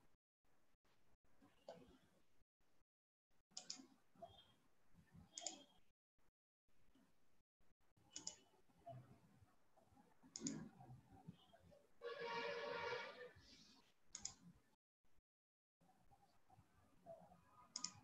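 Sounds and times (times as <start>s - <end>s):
faint mouse clicks: 3.6s - 4.4s, 5.3s - 5.8s, 8.1s - 9.1s, 10.3s - 10.9s, 14.1s - 14.4s, 17.7s - 18.0s.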